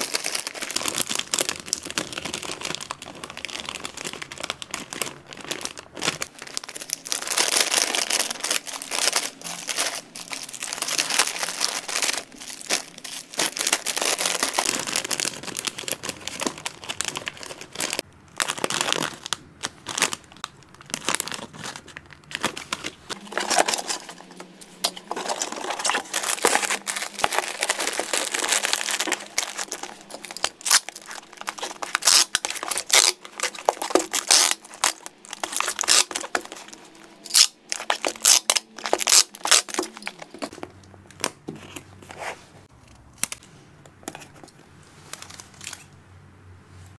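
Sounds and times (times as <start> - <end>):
plastic bags crinkling: 0.0 - 41.9.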